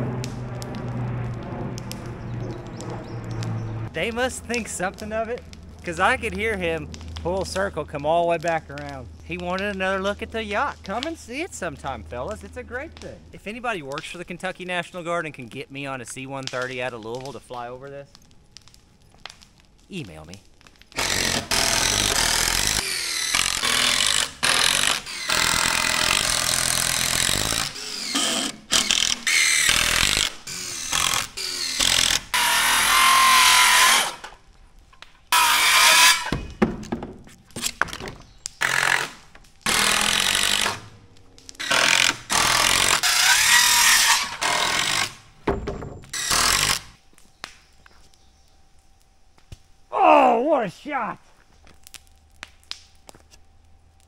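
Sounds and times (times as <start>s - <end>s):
handheld power tool running in bursts: 21.0s - 34.2s.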